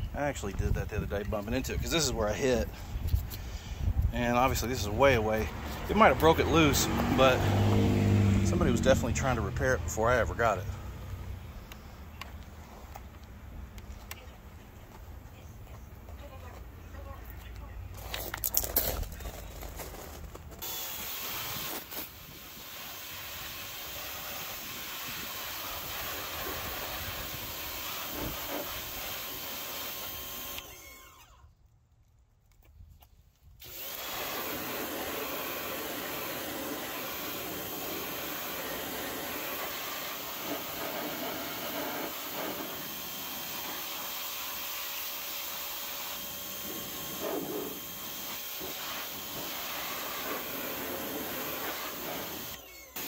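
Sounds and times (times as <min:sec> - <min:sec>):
pressure washer running: 0:04.4 - 0:10.6, 0:20.6 - 0:31.0, 0:33.6 - 0:53.0
water jet spraying car underside: 0:20.6 - 0:30.6, 0:33.7 - 0:53.0.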